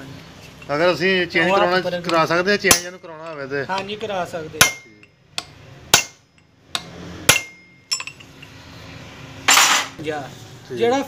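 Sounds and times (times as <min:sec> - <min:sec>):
hammer striking steel tool: 0:02.0 - 0:08.3.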